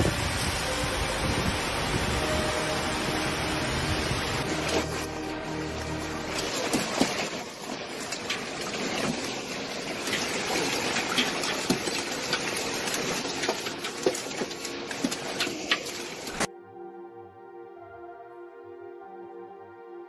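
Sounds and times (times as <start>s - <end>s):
hail falling hiss: 0.0s - 16.5s
hailstones clicking on hard surfaces: 6.3s - 16.5s.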